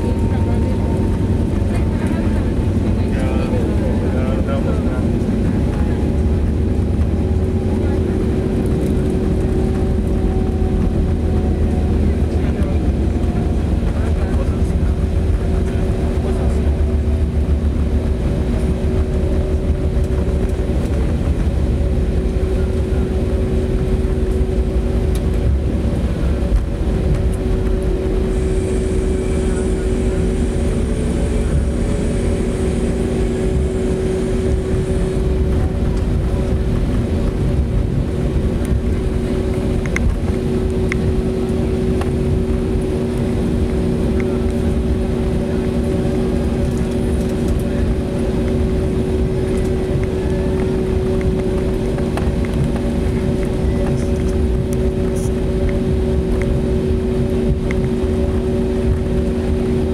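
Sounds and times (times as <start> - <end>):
aircraft cabin low rumble: 0.0 - 59.9
jet engine hum: 0.0 - 59.9
faint high whine: 21.9 - 59.9.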